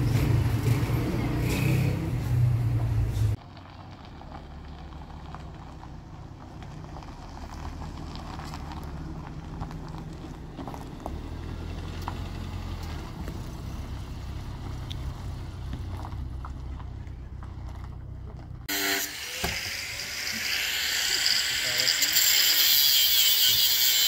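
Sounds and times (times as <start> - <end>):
car engine humming: 0.0 - 18.7.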